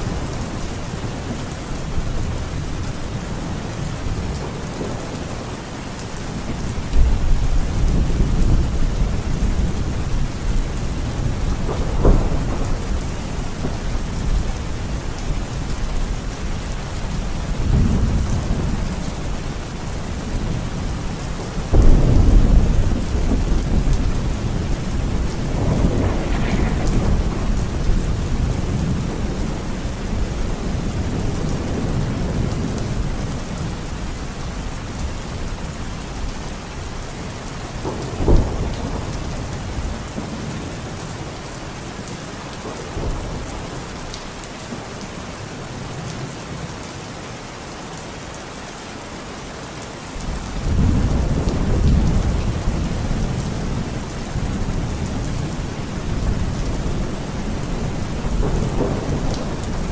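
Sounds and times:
heavy rain falling: 0:00.0 - 0:59.9
thunder rumble: 0:06.3 - 0:16.2, 0:17.1 - 0:33.8, 0:50.3 - 0:59.9
sharp thunderclap: 0:11.1 - 0:14.6, 0:21.7 - 0:32.6, 0:37.8 - 0:40.4.

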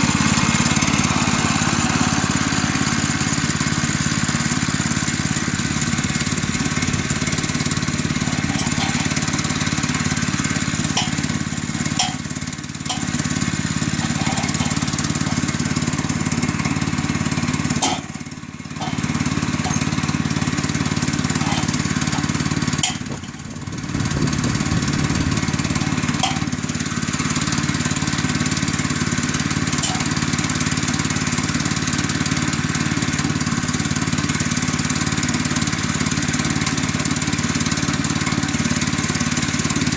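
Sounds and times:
small gas engine running: 0:00.0 - 0:39.9
sharp knocks on steel: 0:17.8 - 0:18.2.

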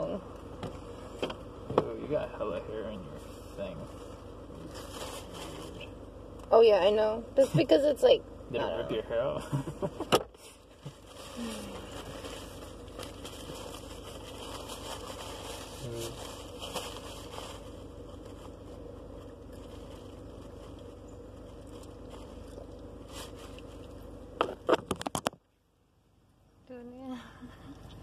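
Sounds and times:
car interior hum: 0:00.0 - 0:28.0
tissue rustling: 0:10.8 - 0:23.9.

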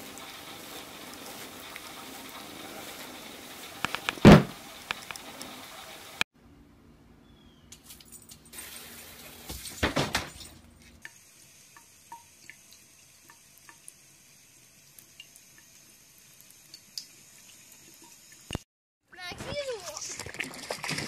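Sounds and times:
faucet water running into sink: 0:00.0 - 0:06.2, 0:08.5 - 0:10.2, 0:11.0 - 0:18.6.

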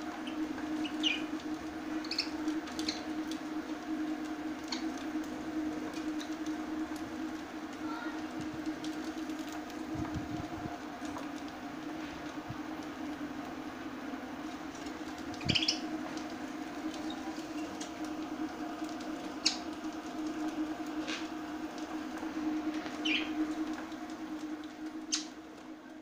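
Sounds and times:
steady low hum: 0:00.0 - 0:26.0
budgerigars chirping: 0:15.4 - 0:15.8.

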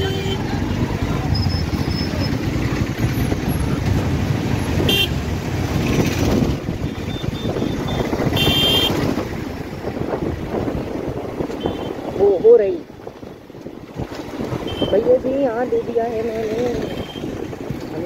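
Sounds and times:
vehicle horns tooting: 0:00.0 - 0:00.5, 0:04.8 - 0:05.2, 0:06.9 - 0:09.1, 0:11.5 - 0:12.3, 0:14.6 - 0:15.1, 0:16.7 - 0:17.4
motorcycle engine rumble: 0:00.0 - 0:18.0.

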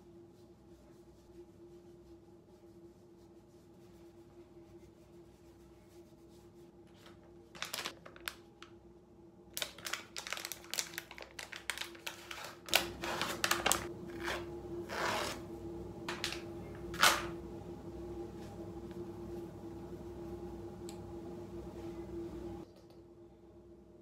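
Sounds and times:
faint hum: 0:00.0 - 0:24.0
wrapper crinkling: 0:06.9 - 0:08.8, 0:09.6 - 0:13.9.

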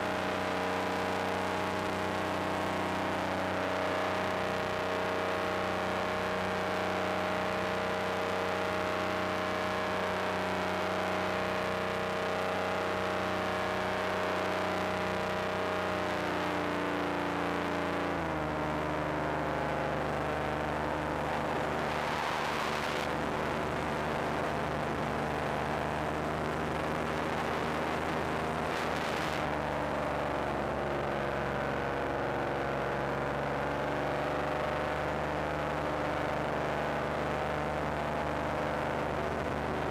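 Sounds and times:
paramotor engine and propeller: 0:00.0 - 0:39.9.

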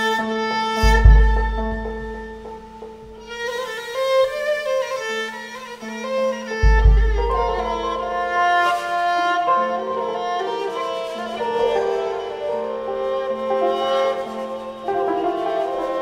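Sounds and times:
bowed lyra melody: 0:00.0 - 0:16.0
deep low boom: 0:00.8 - 0:03.2, 0:06.6 - 0:08.4
low drone note: 0:00.8 - 0:03.3, 0:06.6 - 0:10.8.

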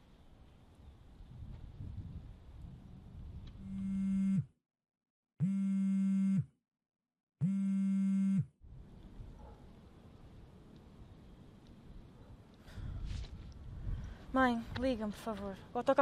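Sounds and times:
mobile phone vibrating: 0:03.6 - 0:04.6, 0:05.4 - 0:06.6, 0:07.4 - 0:08.6.

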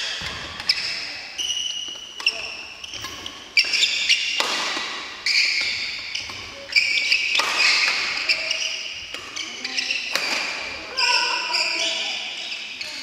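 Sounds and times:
sneakers squeaking on wooden floor: 0:00.0 - 0:13.0
rackets hitting shuttlecocks: 0:01.7 - 0:11.0.

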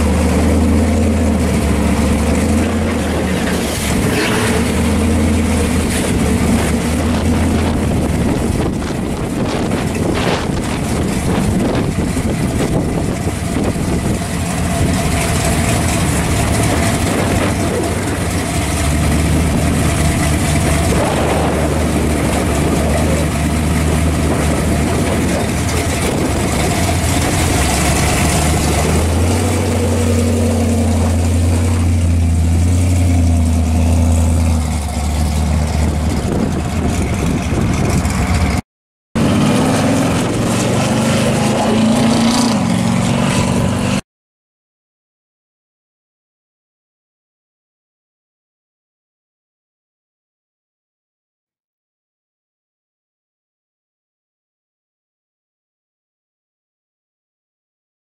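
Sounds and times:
car engine idling loudly: 0:00.0 - 0:38.6.

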